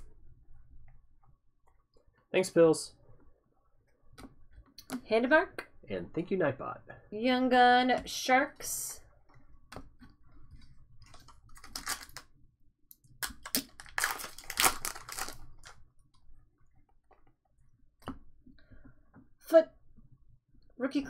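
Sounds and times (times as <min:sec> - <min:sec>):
cards rustling and clicking: 0:11.0 - 0:12.3, 0:13.2 - 0:15.8
foil wrapper crinkling: 0:11.1 - 0:12.2, 0:13.3 - 0:15.8.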